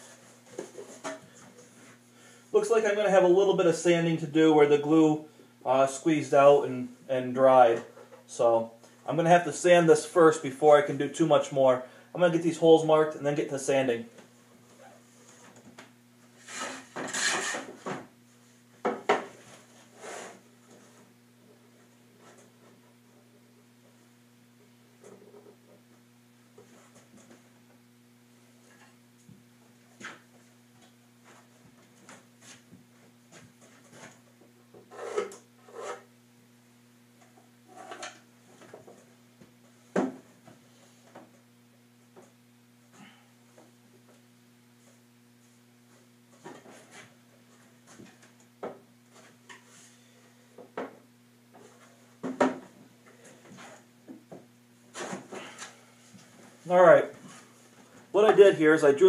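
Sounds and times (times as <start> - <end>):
steady low hum: 0.0 - 59.0.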